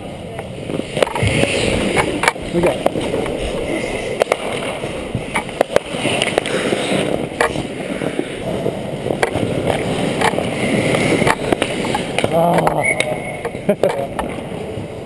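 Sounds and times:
hockey sticks and puck clacking: 0.3s - 14.5s
skate blades scraping ice: 0.4s - 14.6s.

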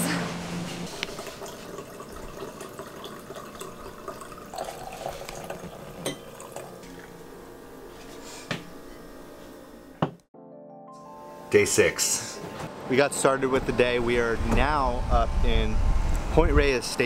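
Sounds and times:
wine pouring into a glass: 1.1s - 7.1s.

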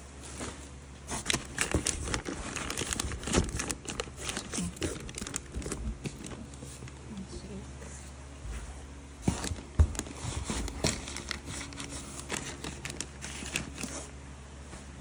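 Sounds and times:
packaging crinkling and rustling: 0.2s - 7.1s, 9.2s - 14.2s.

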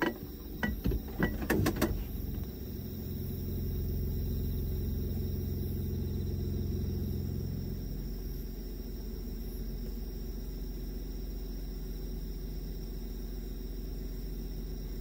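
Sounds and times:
car engine idling: 0.0s - 11.2s
crickets trilling: 0.0s - 15.0s.

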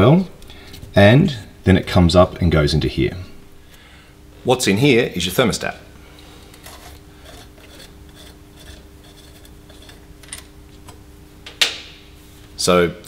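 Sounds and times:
metal parts scraping: 6.5s - 10.5s.

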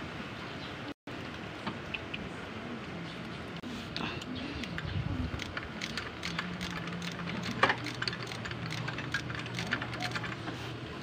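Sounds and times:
socket wrench clicking: 4.6s - 10.4s.

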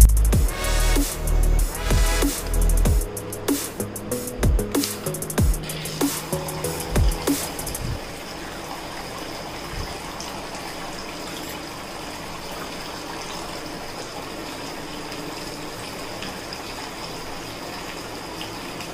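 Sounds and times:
fountain water falling into basin: 4.6s - 18.9s.

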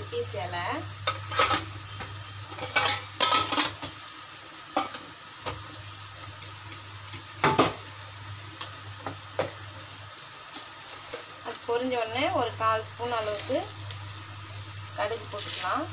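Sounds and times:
spices frying in hot oil: 0.0s - 15.9s.

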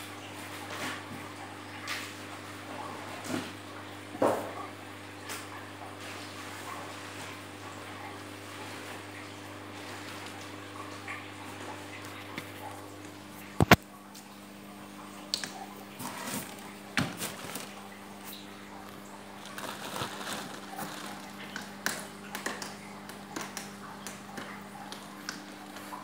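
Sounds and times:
plastic bag crinkling: 16.2s - 18.4s, 19.3s - 21.8s.

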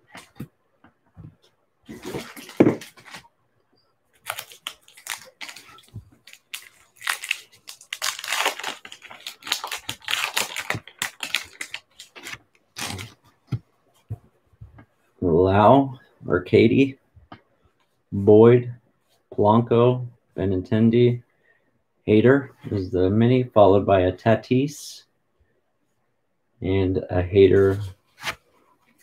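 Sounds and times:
foil wrapper tearing and crinkling: 4.2s - 13.2s.

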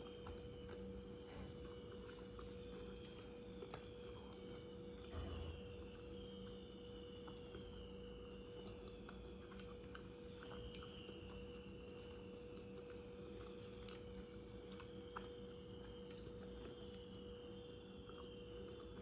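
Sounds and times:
person chewing: 0.0s - 6.1s, 8.6s - 17.1s
steady low hum: 0.0s - 19.0s.

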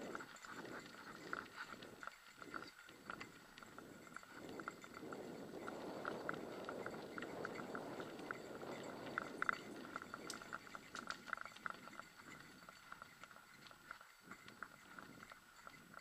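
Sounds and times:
bicycle tyres rumbling on dirt: 4.0s - 12.0s.

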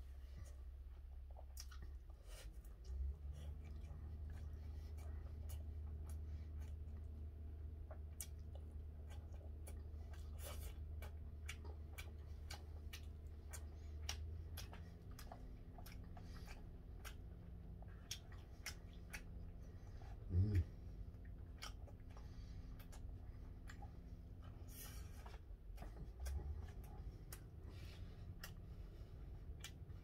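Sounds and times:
low hummed vocal sound: 0.0s - 30.0s
chewing: 0.1s - 30.0s.

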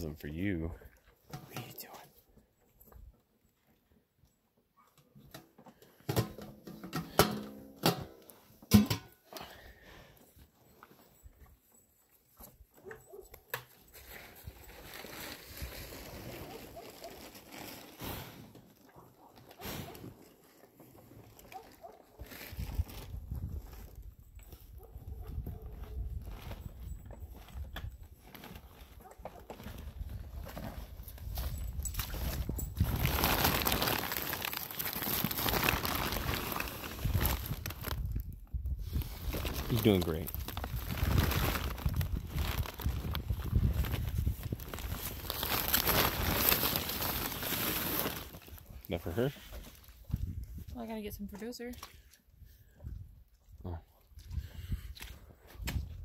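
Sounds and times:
plastic bag crinkling and rustling: 13.7s - 24.2s, 25.7s - 50.0s.

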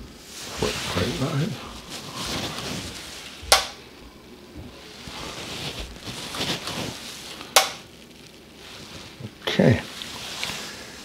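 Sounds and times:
socket switch clicks: 3.5s - 3.8s, 7.6s - 7.8s.

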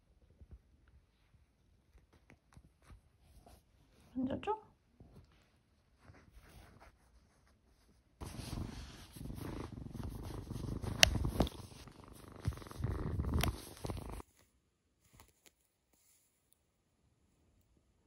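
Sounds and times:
kitten purring: 8.2s - 14.3s.

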